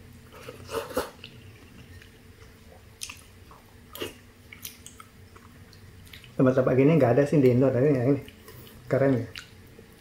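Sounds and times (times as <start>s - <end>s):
person chewing: 0.2s - 6.4s, 8.2s - 10.0s.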